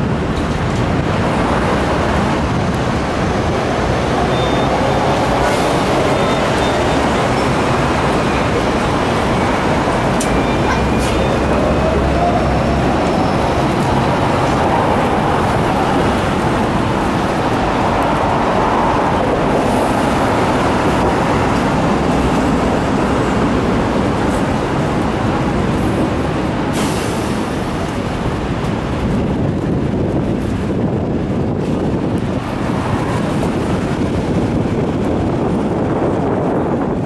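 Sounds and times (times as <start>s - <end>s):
tram wheels and motor running: 0.0s - 37.0s.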